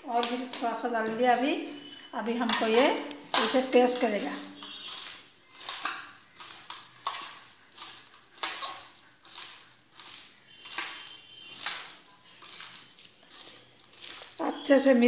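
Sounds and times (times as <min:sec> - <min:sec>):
wet squishing of kneading hands: 0:00.0 - 0:15.0.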